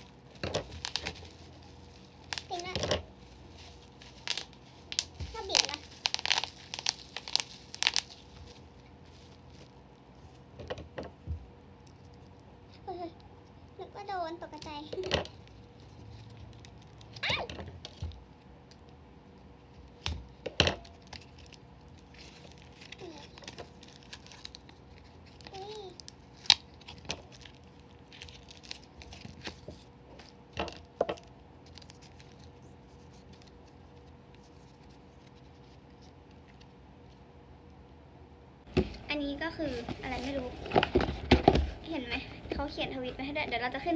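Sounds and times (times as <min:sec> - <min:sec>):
plastic card sleeves rustling: 0:00.0 - 0:10.5, 0:19.7 - 0:30.9, 0:31.6 - 0:36.7, 0:38.7 - 0:41.8.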